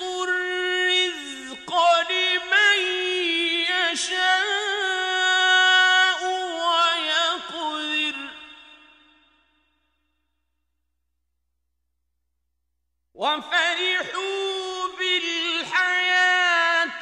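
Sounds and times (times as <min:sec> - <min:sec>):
man chanting: 0:00.0 - 0:09.0, 0:13.2 - 0:17.0.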